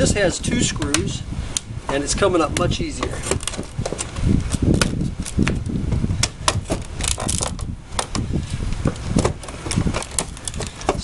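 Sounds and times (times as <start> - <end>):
pallet board being pried up: 3.0 - 5.6, 6.2 - 8.3, 8.9 - 11.0.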